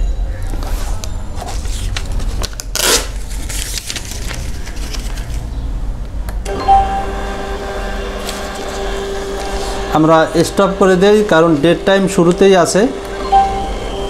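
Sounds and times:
paper rustle: 0.6s - 5.5s
thermal printer motor whirring: 6.5s - 14.0s.

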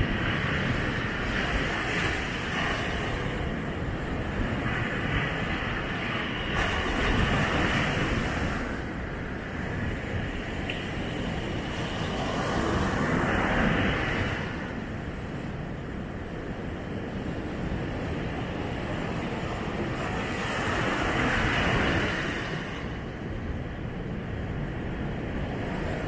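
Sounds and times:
wind: 0.0s - 26.0s
heavy surf breaking: 17.5s - 23.7s.

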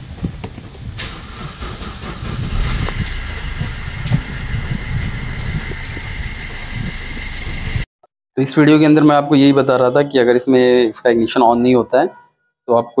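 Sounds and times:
car engine starting and idling: 1.0s - 7.8s
steady high whine: 2.3s - 7.9s.

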